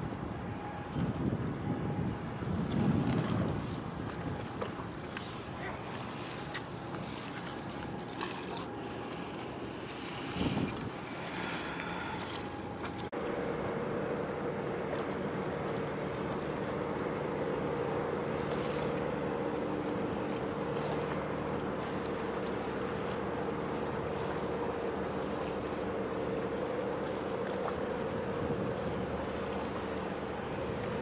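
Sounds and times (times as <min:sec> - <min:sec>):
wind gust on microphone: 0:00.0 - 0:04.5, 0:10.2 - 0:11.0
boat engine running: 0:00.0 - 0:31.0
water noise: 0:00.0 - 0:31.0
wind: 0:00.0 - 0:31.0.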